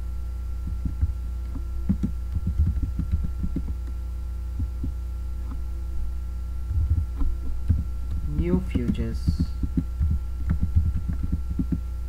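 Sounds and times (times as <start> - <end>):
steady electrical hum: 0.0 - 12.0
keyboard typing taps: 0.7 - 4.0, 6.8 - 11.9.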